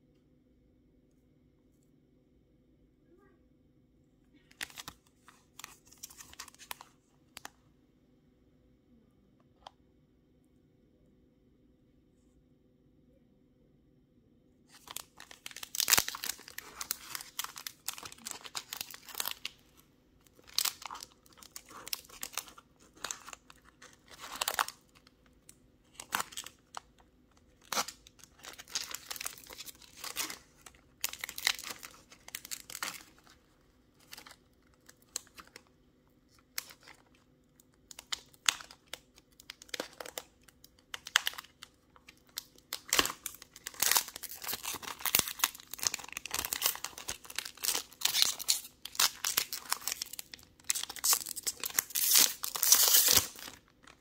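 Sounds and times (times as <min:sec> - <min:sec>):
foil wrapper tearing and crinkling: 0:14.7 - 0:19.7, 0:20.3 - 0:25.1, 0:25.9 - 0:26.8, 0:27.5 - 0:33.4, 0:37.9 - 0:54.0.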